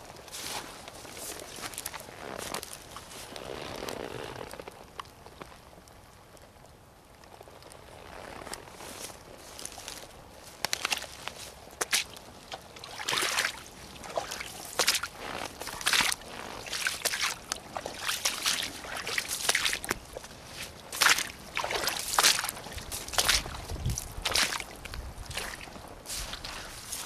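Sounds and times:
boots splashing through water: 0:10.7 - 0:27.0.

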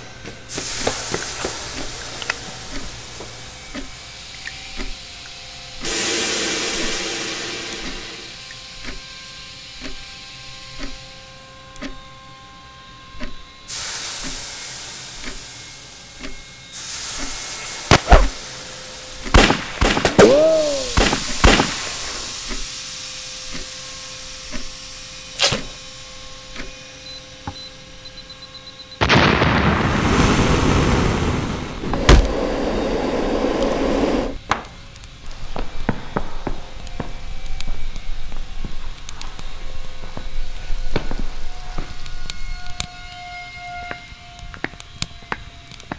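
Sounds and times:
hiss: 0:00.0 - 0:10.9, 0:13.7 - 0:26.7, 0:29.2 - 0:43.2
loud fire-like rushing: 0:05.8 - 0:08.5, 0:13.7 - 0:25.0, 0:29.0 - 0:42.5
pistol shots: 0:19.3 - 0:22.2
slow thuds: 0:31.8 - 0:34.4.

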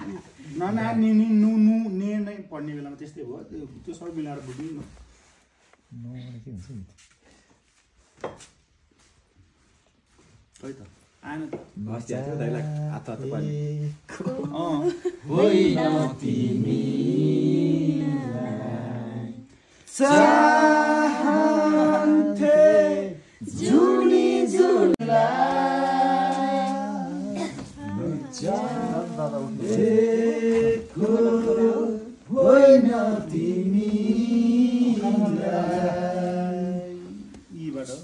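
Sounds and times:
voices singing unaccompanied: 0:11.7 - 0:38.0.

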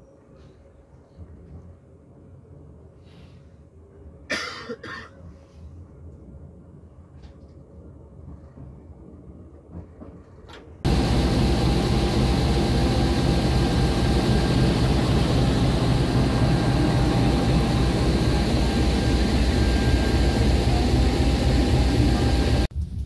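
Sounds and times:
diesel locomotive engine drone: 0:10.8 - 0:22.8
thin steady whine: 0:10.9 - 0:22.7.

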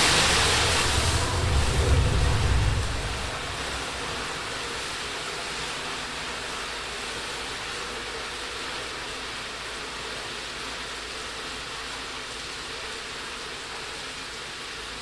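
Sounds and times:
fireball roar: 0:00.0 - 0:05.1
flames hissing: 0:00.0 - 0:05.6.

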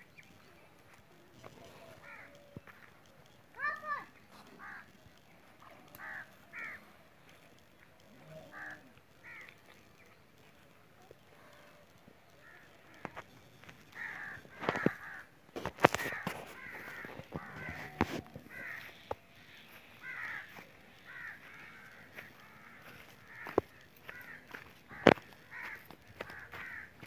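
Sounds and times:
crows cawing: 0:01.4 - 0:02.9, 0:03.5 - 0:07.4, 0:08.2 - 0:09.8, 0:11.2 - 0:27.0.

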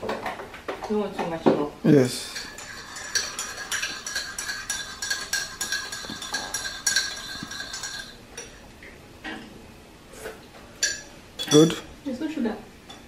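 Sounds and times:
teaspoon clinking in mug: 0:02.3 - 0:08.2, 0:10.8 - 0:11.8.

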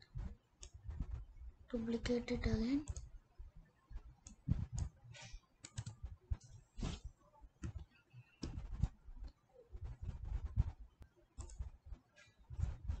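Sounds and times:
keyboard and mouse clicking: 0:02.8 - 0:03.1, 0:04.2 - 0:04.9, 0:05.6 - 0:06.5, 0:11.4 - 0:11.7.

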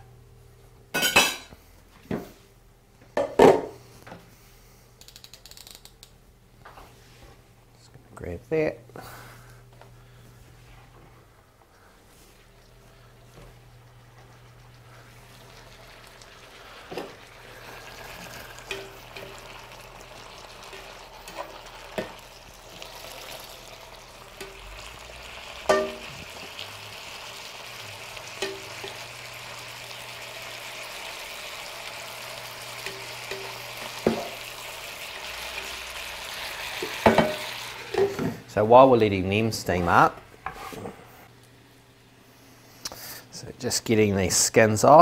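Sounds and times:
vegetables sizzling in a hot pan: 0:13.6 - 0:38.2.

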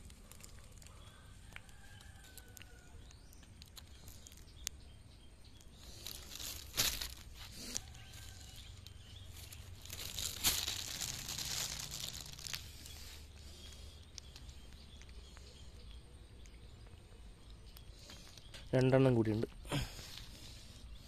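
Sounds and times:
plastic bag rustling: 0:05.8 - 0:13.2.

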